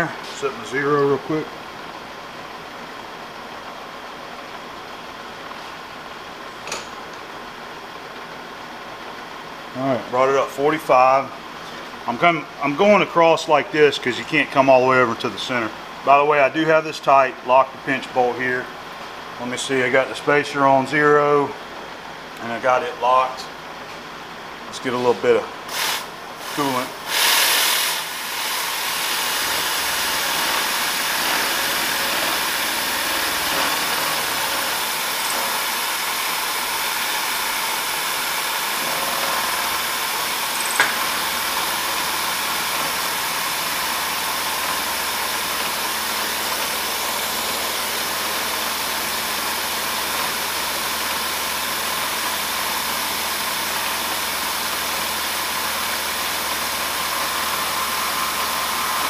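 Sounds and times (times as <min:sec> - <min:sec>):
coolant spray hiss: 0:25.2 - 0:59.0
milling machine cutting metal: 0:25.7 - 0:59.0.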